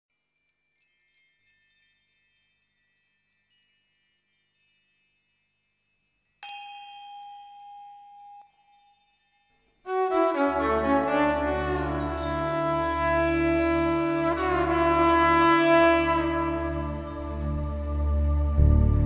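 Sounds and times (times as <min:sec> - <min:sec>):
chimes tinkling: 0:00.2 - 0:18.6
deep bell-like note ringing: 0:09.9 - 0:19.0.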